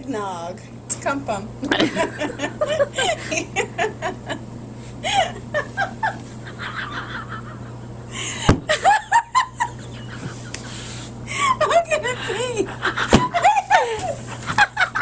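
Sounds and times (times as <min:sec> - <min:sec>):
low hum: 0:00.0 - 0:15.0
woman laughing hard: 0:01.7 - 0:10.7, 0:11.3 - 0:15.0
sharp thump: 0:08.5 - 0:08.7.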